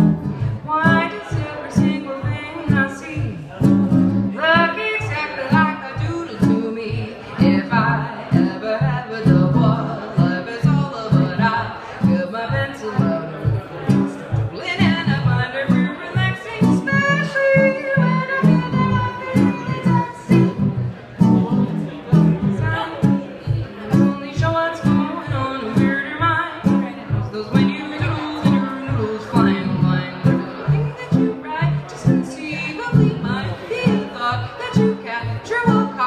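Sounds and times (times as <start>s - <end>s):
plucked guitar chords: 0.0s - 36.0s
woman singing jazz: 0.1s - 3.5s, 4.4s - 13.6s, 14.4s - 20.7s, 22.5s - 23.1s, 23.8s - 36.0s.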